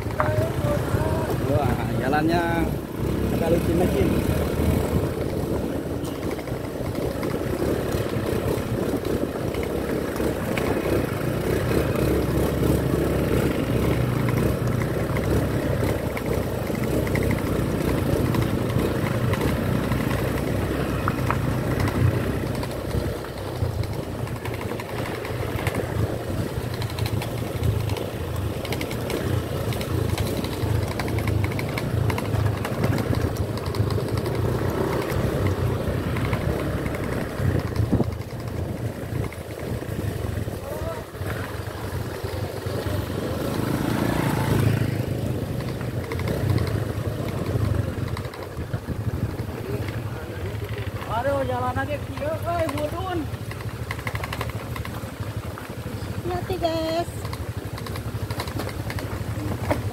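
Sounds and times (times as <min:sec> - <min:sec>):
small motorbike engine running: 0:00.0 - 0:59.9
sharp clicks and knocks: 0:13.4 - 0:39.5, 0:45.5 - 0:50.0, 0:52.0 - 0:55.7, 0:57.0 - 0:59.9.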